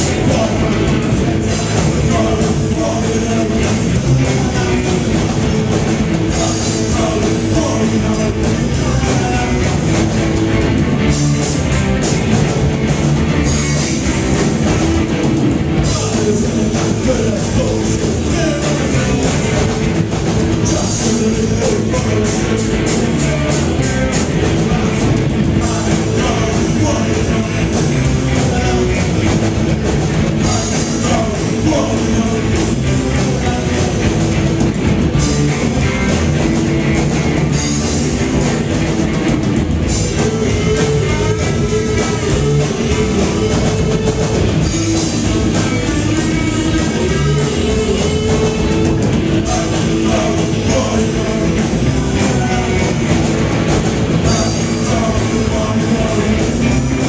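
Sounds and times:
person singing: 0.0 - 5.5, 6.3 - 10.0, 15.8 - 19.9, 20.6 - 29.3, 30.4 - 34.2, 39.9 - 53.3, 54.1 - 57.0
bass guitar: 0.0 - 57.0
drum kit: 0.0 - 57.0
electric guitars: 0.0 - 57.0.

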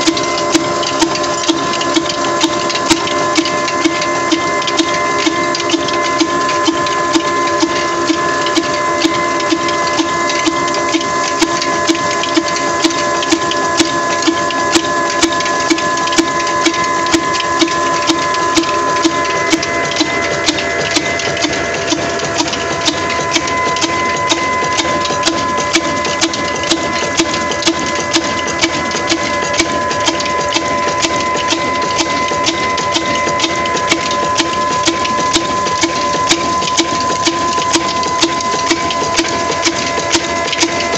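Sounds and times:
diesel engine knocking: 0.0 - 40.9
mechanical clatter: 0.0 - 40.9
steady whine: 0.0 - 40.9.

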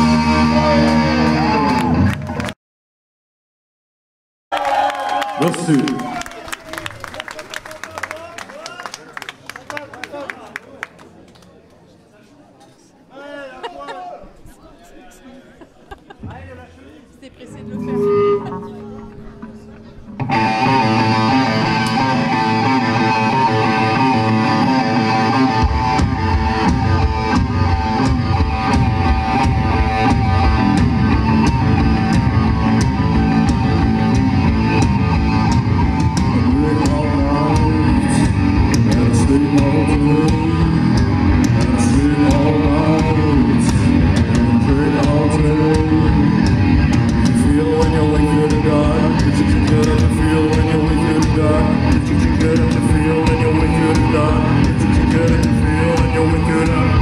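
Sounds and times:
electric guitar riff: 0.0 - 2.3, 17.4 - 57.0
rock band playing: 0.0 - 2.4, 17.4 - 57.0
bass guitar: 0.0 - 2.5, 17.4 - 57.0
drum kit: 25.1 - 57.0.

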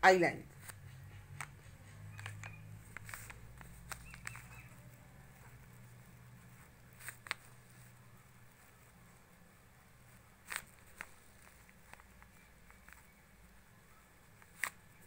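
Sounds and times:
small clicks and light taps: 0.6 - 5.5.

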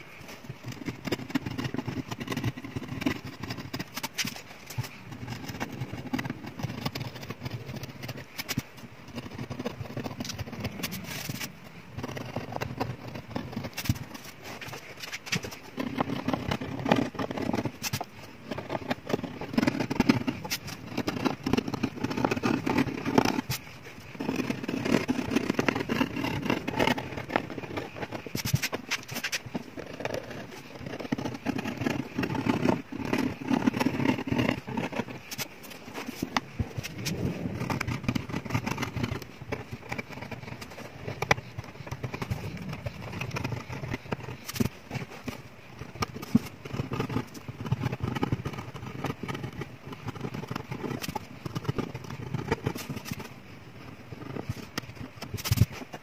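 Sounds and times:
blade scraping glue off wood: 0.7 - 56.0.

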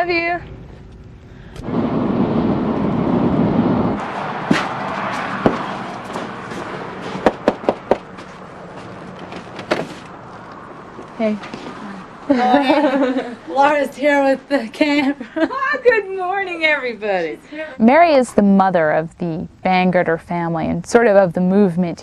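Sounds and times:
car road noise: 0.5 - 13.9
car doors and latches knocking: 7.2 - 8.1.

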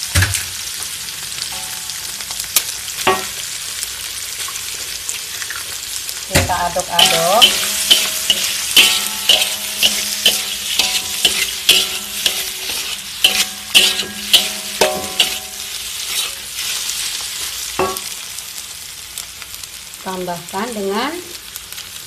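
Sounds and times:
food sizzling: 0.0 - 22.0
metal spatula scraping a wok: 6.8 - 18.2.

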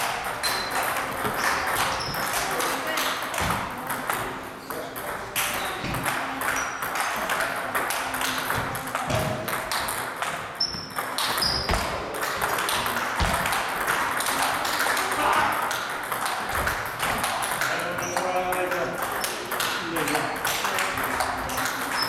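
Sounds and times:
table tennis balls clicking: 0.0 - 22.0
shoe squeaks: 0.4 - 2.4, 10.6 - 11.9.

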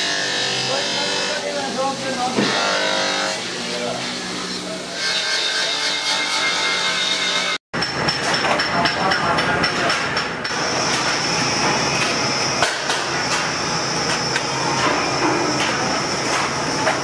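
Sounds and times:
high-pitched machine whine: 10.4 - 17.0.

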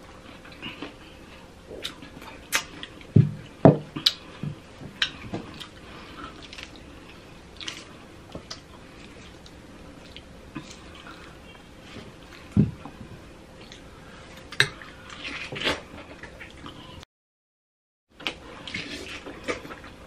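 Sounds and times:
wet squishy chewing: 4.0 - 12.6.

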